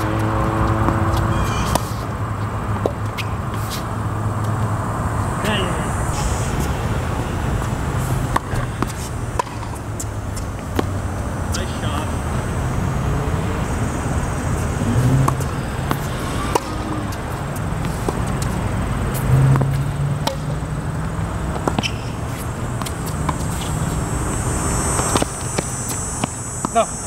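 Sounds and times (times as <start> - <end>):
racket hitting tennis ball: 0.0 - 4.7, 6.1 - 12.2, 14.5 - 26.9
footsteps on court: 14.6 - 19.9, 21.0 - 24.0.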